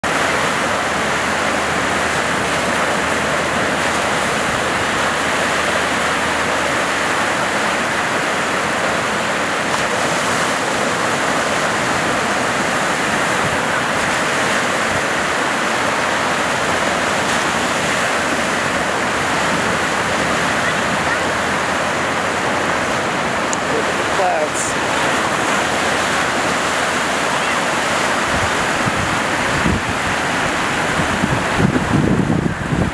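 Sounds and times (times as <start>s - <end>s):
ocean surf breaking: 0.0s - 32.9s.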